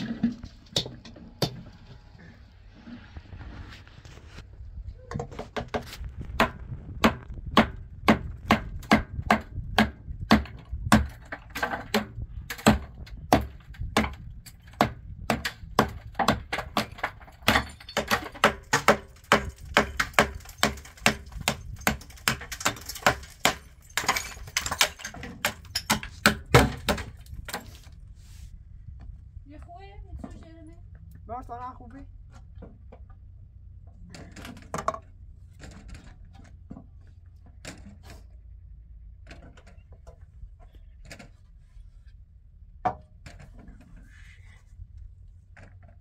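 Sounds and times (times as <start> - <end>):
hammer striking concrete: 6.4 - 14.2, 14.8 - 27.1.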